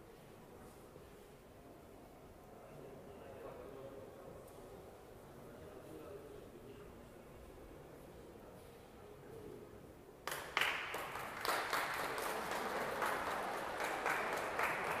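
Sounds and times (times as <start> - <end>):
audience applauding: 10.3 - 15.0.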